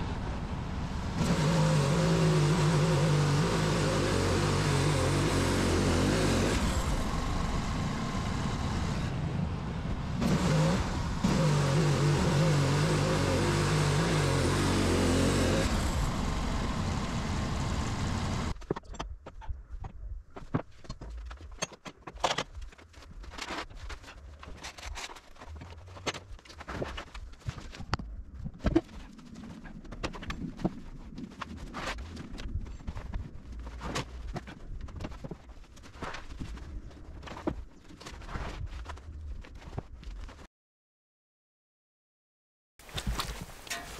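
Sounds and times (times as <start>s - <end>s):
bandsaw mill sawing log: 1.2s - 9.2s, 10.2s - 18.5s.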